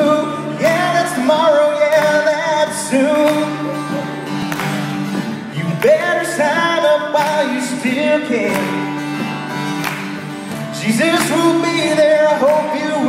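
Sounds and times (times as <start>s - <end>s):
guitar accompaniment: 0.0s - 13.0s
man singing country-rock song: 0.0s - 13.0s.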